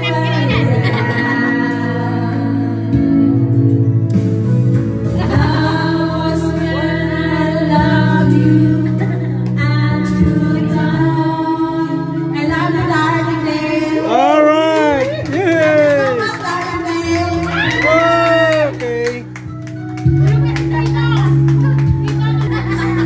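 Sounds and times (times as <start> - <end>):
woman singing into a microphone: 0.0 - 3.3, 5.1 - 14.3
recorded backing track: 0.0 - 23.0.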